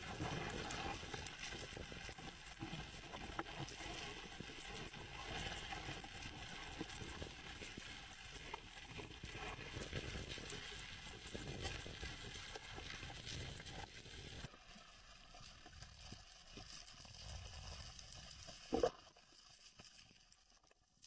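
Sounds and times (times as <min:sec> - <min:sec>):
underwater crackle of clicks: 0:17.7 - 0:21.0.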